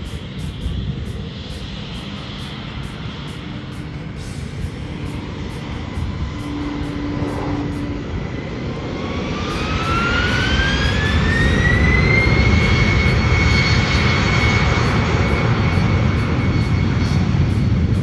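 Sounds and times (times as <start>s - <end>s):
jet engines whining: 0.0s - 18.0s
low engine rumble: 0.0s - 18.0s.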